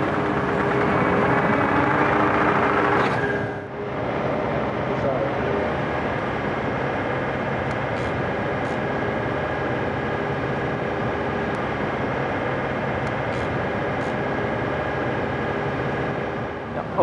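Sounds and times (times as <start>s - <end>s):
mini excavator engine drone: 0.0s - 17.0s.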